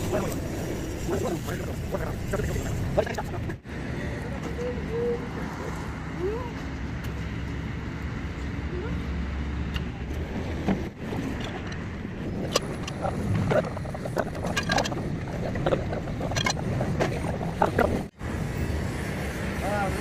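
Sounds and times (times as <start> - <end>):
metal clinks and knocks: 12.4 - 15.2.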